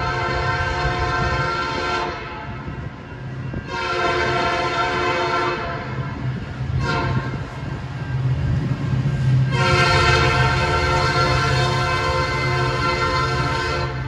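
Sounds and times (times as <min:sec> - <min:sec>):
locomotive air horn blasts: 0:00.0 - 0:02.7, 0:03.6 - 0:06.1, 0:06.7 - 0:07.4, 0:09.5 - 0:14.0
locomotive engine rumble: 0:00.0 - 0:14.0.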